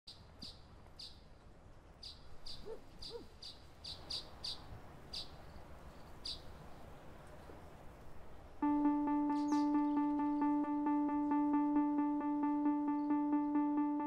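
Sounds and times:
bird chirping: 2.0 - 7.6, 8.7 - 11.8.

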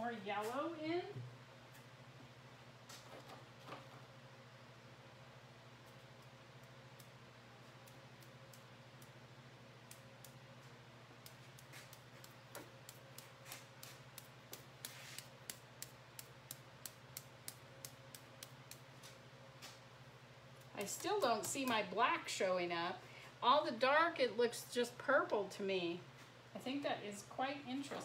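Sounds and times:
faint low hum: 0.0 - 28.0
brush taps: 11.2 - 19.2.

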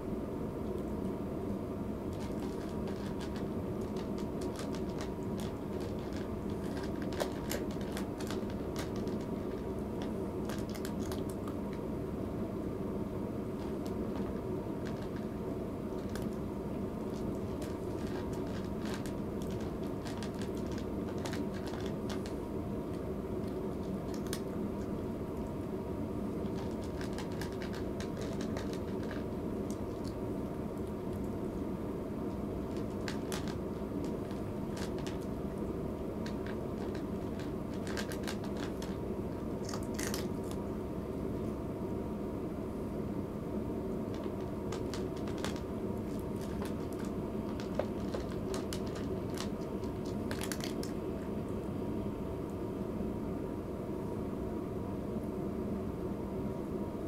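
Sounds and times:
steady low hum: 0.0 - 57.0
cat chewing from plastic bowl: 2.1 - 11.9, 13.4 - 40.7, 43.9 - 51.7.

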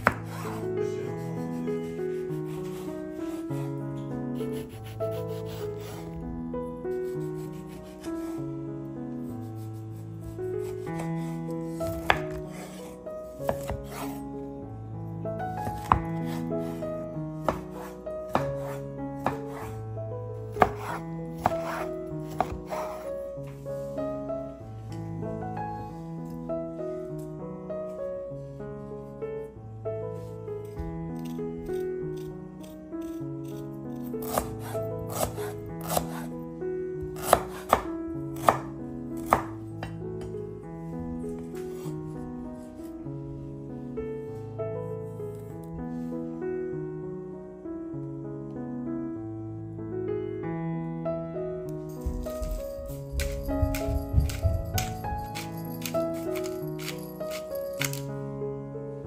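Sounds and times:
soft background music: 0.0 - 59.0
knife slicing lemon on board: 11.8 - 12.8, 20.6 - 23.1, 34.2 - 36.3, 37.2 - 39.5.

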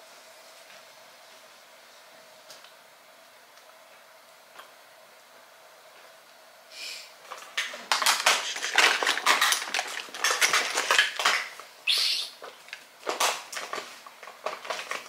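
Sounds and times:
makeup items clattering on tabletop: 7.6 - 11.6.

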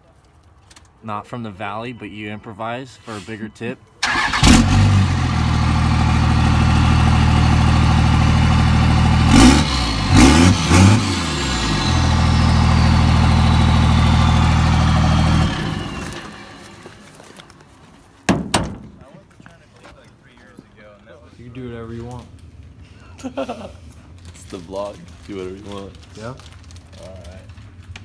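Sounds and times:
vehicle engine idling and revving: 4.2 - 17.6.

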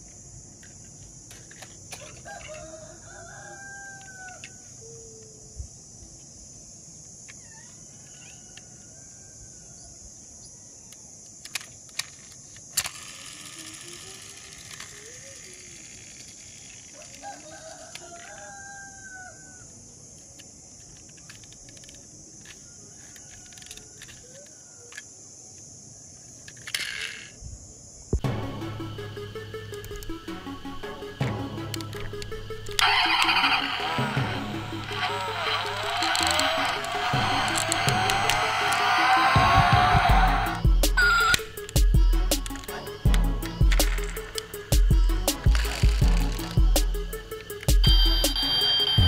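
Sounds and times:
plastic toys clicking: 0.6 - 2.5, 10.9 - 18.5, 20.1 - 25.7, 26.3 - 27.4, 31.8 - 48.0
electronic toy animal call: 32.7 - 41.8, 47.7 - 49.0.

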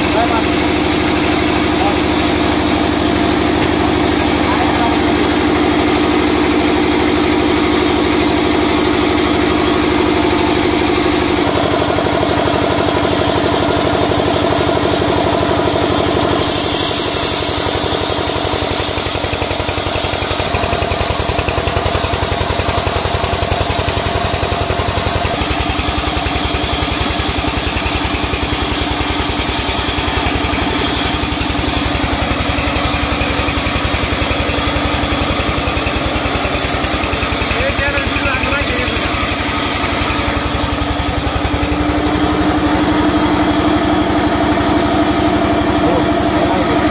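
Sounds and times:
band saw cutting timber: 0.0 - 46.9
harsh hiss: 16.4 - 19.4.

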